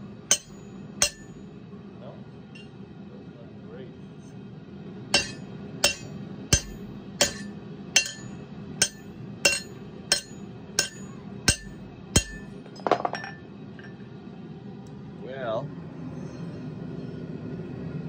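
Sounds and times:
hammer striking steel on anvil: 0:00.0 - 0:01.4, 0:05.2 - 0:13.4
metal clatter: 0:05.2 - 0:13.4.

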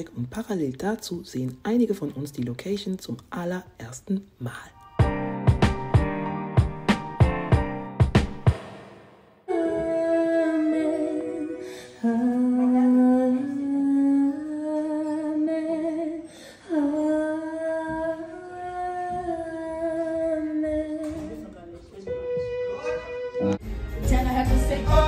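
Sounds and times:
vocal ensemble singing chords: 0:23.4 - 0:25.0.

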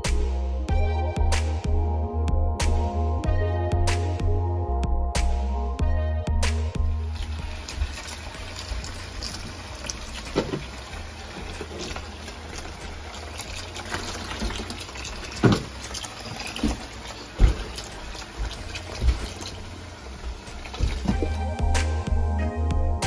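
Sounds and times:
faucet water filling plastic tub: 0:06.8 - 0:22.3.

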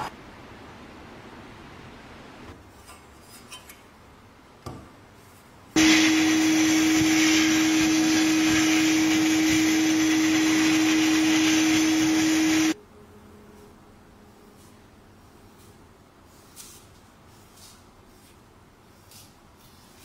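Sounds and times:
small electric power tool running: 0:05.8 - 0:12.8.

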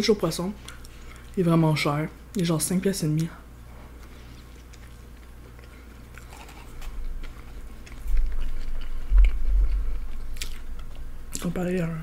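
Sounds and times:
biting and chewing food: 0:03.9 - 0:11.6.

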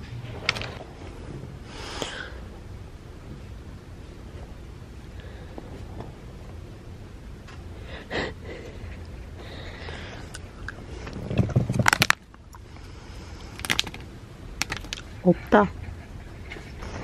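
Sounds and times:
plastic bag crinkling: 0:11.4 - 0:12.2, 0:13.6 - 0:14.0.

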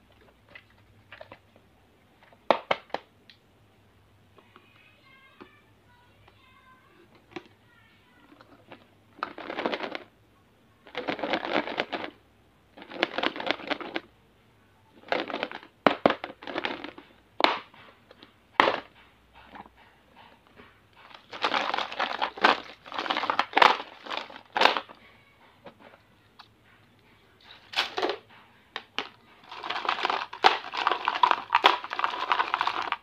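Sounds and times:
candy wrappers crinkling: 0:12.8 - 0:14.1, 0:21.0 - 0:25.0, 0:27.5 - 0:28.2, 0:28.8 - 0:33.0.

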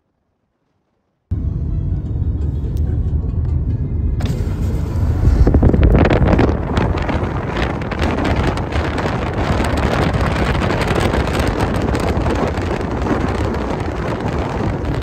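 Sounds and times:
car road noise: 0:01.3 - 0:15.0
wind buffeting microphone: 0:04.8 - 0:15.0.

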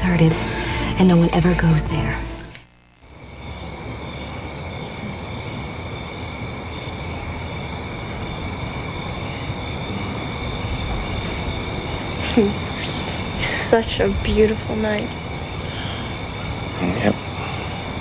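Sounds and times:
insects chirping: 0:00.0 - 0:18.0
soft background hum: 0:00.0 - 0:18.0
frogs calling: 0:03.0 - 0:18.0.

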